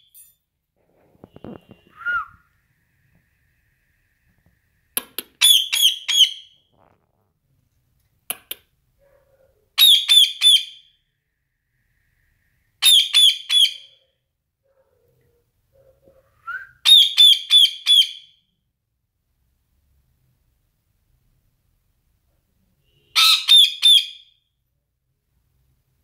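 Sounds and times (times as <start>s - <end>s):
parakeet shrill whistling calls: 5.4s - 6.6s, 9.8s - 10.9s, 12.8s - 13.9s, 16.8s - 18.3s, 23.2s - 24.3s.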